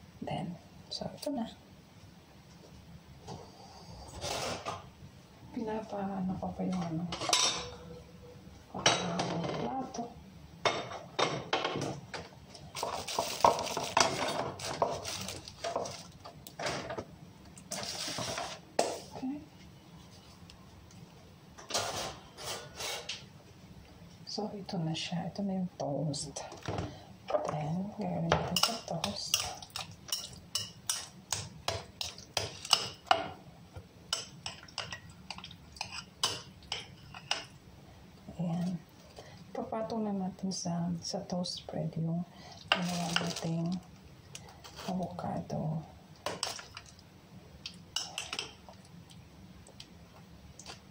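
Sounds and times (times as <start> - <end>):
dishes and utensils clinking: 6.7 - 7.9.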